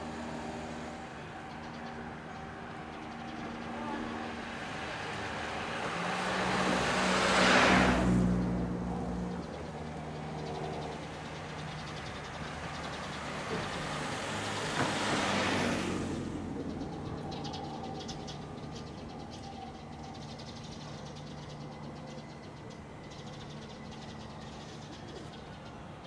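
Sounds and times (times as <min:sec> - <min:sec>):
vehicle passing whoosh: 0:04.1 - 0:10.7, 0:13.2 - 0:17.4.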